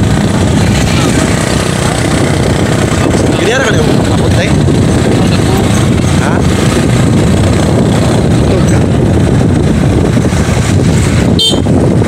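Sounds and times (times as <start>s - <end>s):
motorcycle engine running: 0.0s - 12.0s
wind buffeting microphone: 0.0s - 12.0s.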